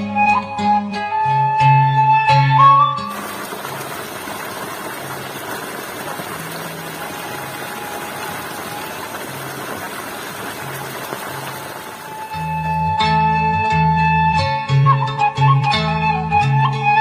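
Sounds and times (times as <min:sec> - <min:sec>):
water splashing into paddy: 0:03.1 - 0:12.6
water gushing from pipe: 0:03.1 - 0:12.8.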